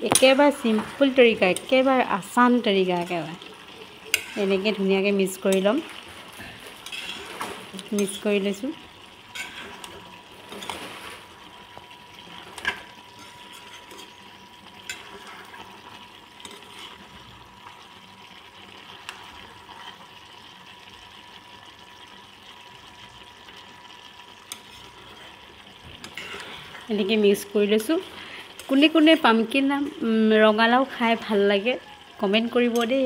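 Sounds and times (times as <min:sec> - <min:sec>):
vegetables sizzling in oil: 0:00.0 - 0:33.0
steel spoon scraping a pan: 0:04.0 - 0:05.7, 0:06.6 - 0:08.5, 0:09.3 - 0:11.3, 0:12.2 - 0:17.4, 0:24.4 - 0:27.3.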